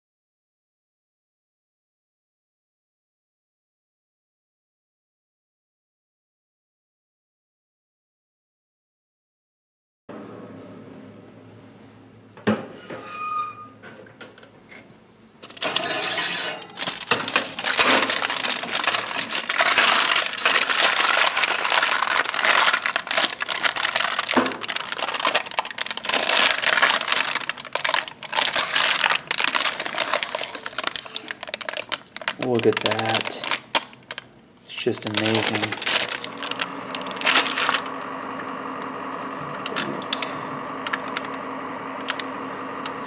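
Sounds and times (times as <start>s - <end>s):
clicks and scrapes: 14.7s - 20.6s
parchment paper crinkling: 15.5s - 37.9s.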